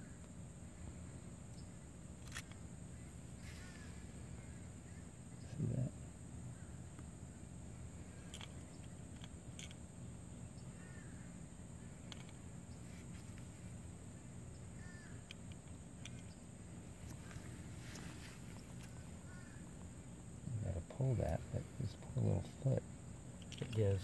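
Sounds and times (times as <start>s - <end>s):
faint short calls: 1.6s - 6.9s, 10.5s - 24.0s.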